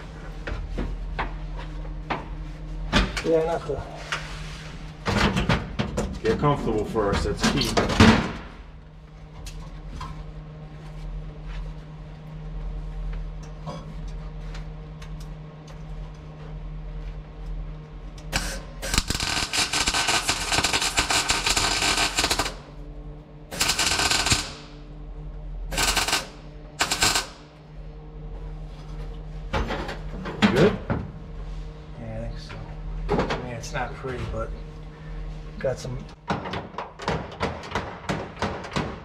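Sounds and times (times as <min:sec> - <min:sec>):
welder crackling on steel: 0:18.4 - 0:22.7, 0:23.5 - 0:24.8, 0:25.7 - 0:27.4.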